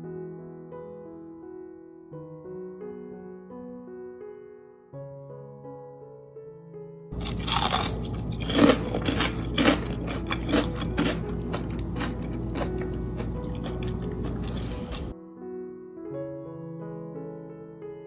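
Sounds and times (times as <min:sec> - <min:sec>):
fried batter crunching: 0:07.2 - 0:15.1.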